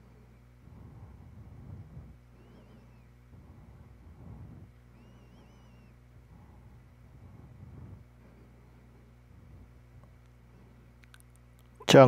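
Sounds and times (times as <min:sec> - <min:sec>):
high warbling whistle: 0:04.9 - 0:06.0.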